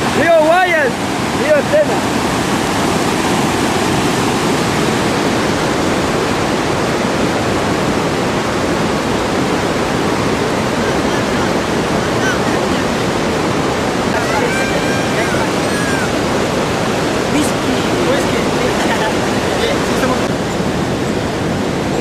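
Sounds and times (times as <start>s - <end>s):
white-water rapids rushing: 0.0s - 22.0s.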